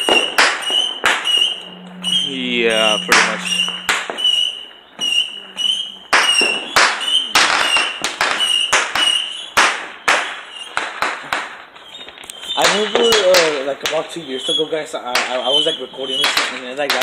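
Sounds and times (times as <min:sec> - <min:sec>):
firecrackers cracking and popping: 0:00.0 - 0:01.5, 0:06.1 - 0:17.0
high whistling tone: 0:00.0 - 0:07.9.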